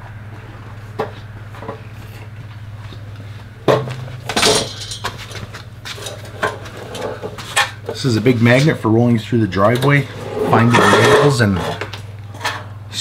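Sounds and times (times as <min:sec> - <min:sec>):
steady low hum: 0:00.0 - 0:13.0
metal clanking and clattering: 0:03.7 - 0:08.0, 0:09.7 - 0:12.7.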